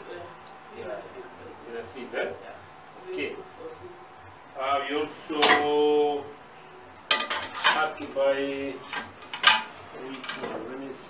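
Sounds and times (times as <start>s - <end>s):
metal kitchenware clinking: 5.3s - 5.8s, 7.1s - 8.2s, 8.8s - 10.7s.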